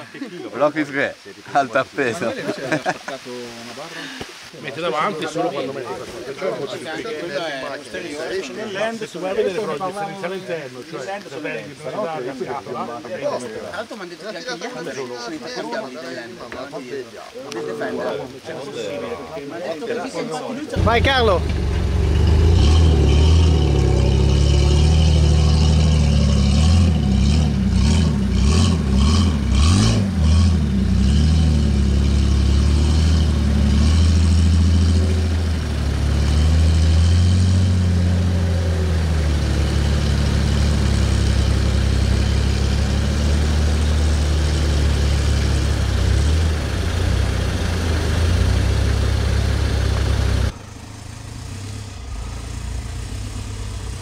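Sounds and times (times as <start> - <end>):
engine running at low revs: 20.8 - 54.0.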